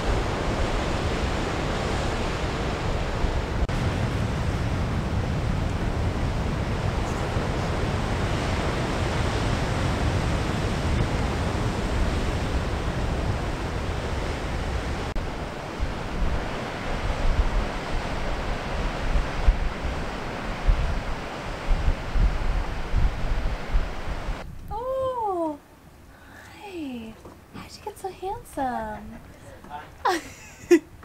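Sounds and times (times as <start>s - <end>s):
breaking surf: 0.0s - 24.4s
wind rushing: 0.0s - 25.0s
wind buffeting microphone: 0.0s - 25.3s.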